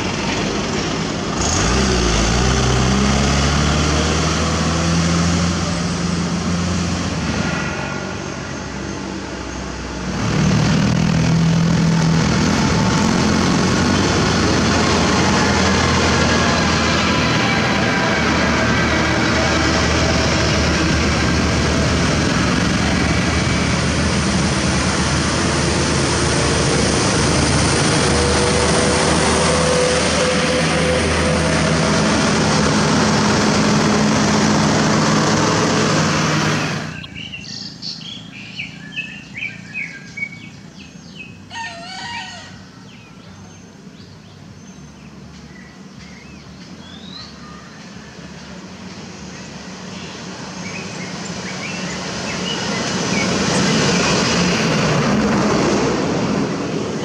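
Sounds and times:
heavy truck engine: 0:00.0 - 0:41.5, 0:42.7 - 0:57.0
road traffic noise: 0:00.0 - 0:57.0
birds chirping: 0:36.6 - 0:54.6.

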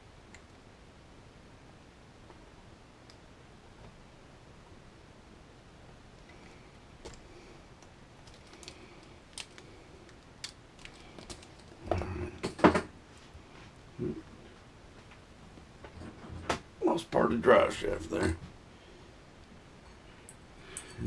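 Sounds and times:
small parts clicking: 0:07.8 - 0:11.8.

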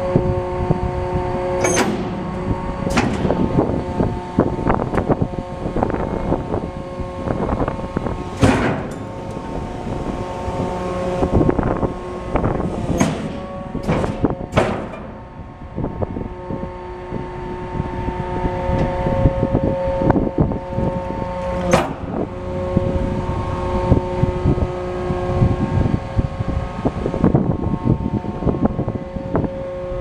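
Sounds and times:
diesel truck engine: 0:00.0 - 0:30.0
hydraulic whine: 0:00.0 - 0:30.0
sharp metal bang: 0:01.6 - 0:04.5, 0:08.1 - 0:15.6
metal knocks: 0:01.6 - 0:05.2, 0:07.9 - 0:15.5.

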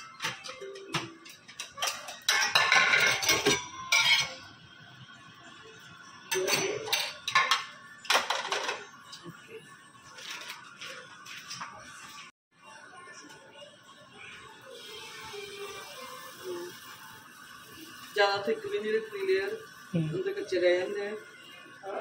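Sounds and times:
dishes and cutlery clattering: 0:00.0 - 0:04.5, 0:06.3 - 0:09.2.

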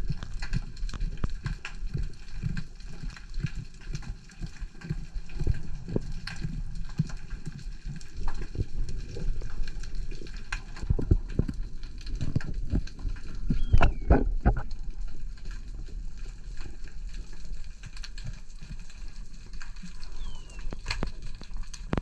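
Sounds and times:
sharp clicks underwater: 0:00.0 - 0:22.0
muffled underwater thuds: 0:10.8 - 0:14.9.

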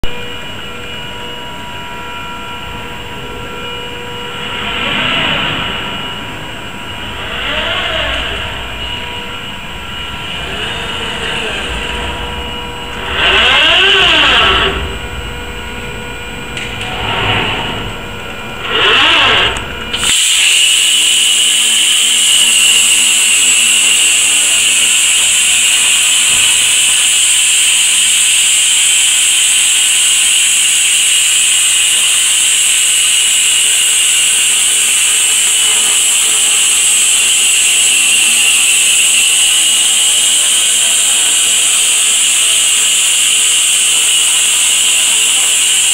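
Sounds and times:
machine whines: 0:00.0 - 0:45.9
low rumble: 0:04.2 - 0:20.0
plasma torch cutting steel hiss: 0:19.9 - 0:45.9.

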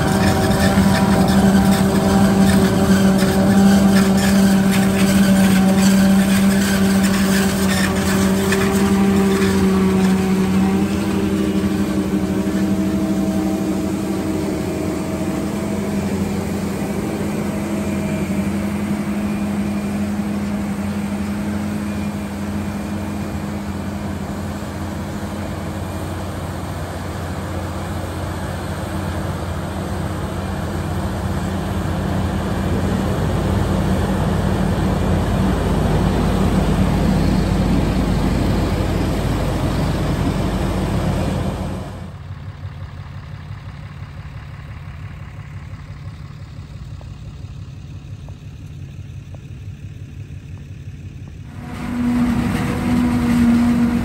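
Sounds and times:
forage harvester humming and whining: 0:00.0 - 0:54.0.

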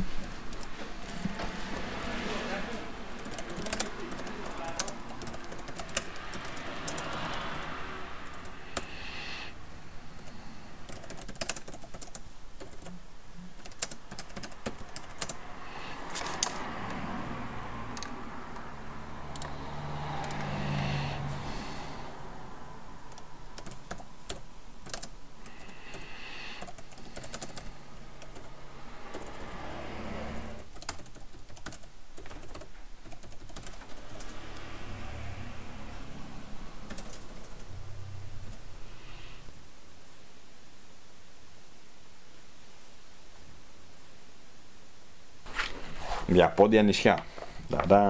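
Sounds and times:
laptop keyboard typing: 0:00.0 - 0:02.0, 0:02.9 - 0:22.0, 0:23.0 - 0:34.8, 0:36.6 - 0:37.8
low hum: 0:33.7 - 0:45.4.

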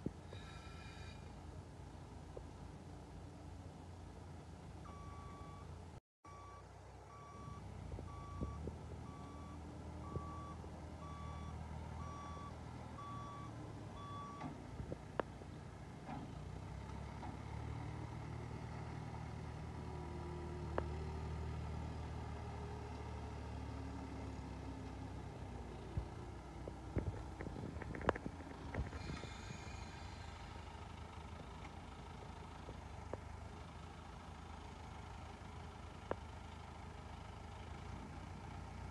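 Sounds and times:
engine running: 0:00.0 - 0:38.9
vehicle reversing alarm beeping: 0:00.3 - 0:01.4, 0:04.8 - 0:05.7, 0:06.3 - 0:14.6.

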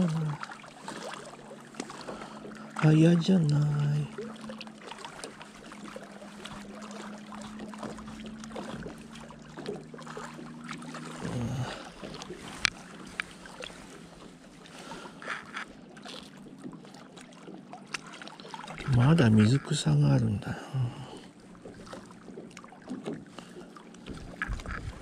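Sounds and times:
light water sounds: 0:00.0 - 0:25.0
steady low hum: 0:05.9 - 0:15.8, 0:18.8 - 0:25.0.

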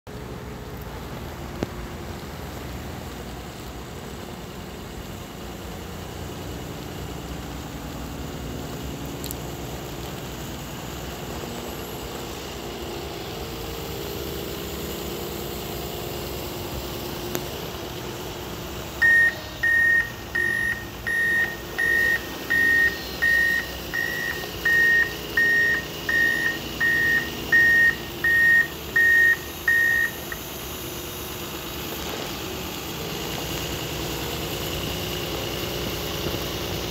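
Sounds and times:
wheel loader diesel engine running: 0:00.1 - 0:36.9
reversing alarm beeps: 0:19.0 - 0:30.5.

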